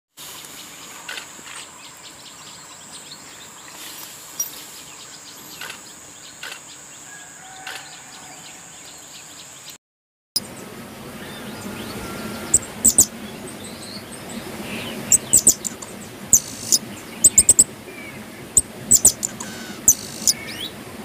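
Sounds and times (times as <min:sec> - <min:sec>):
outdoor background noise: 0:00.1 - 0:09.8, 0:10.4 - 0:21.0
constant high-pitched whine: 0:10.4 - 0:21.0
short high bird chirps: 0:11.4 - 0:13.1, 0:15.1 - 0:17.6, 0:18.9 - 0:20.6.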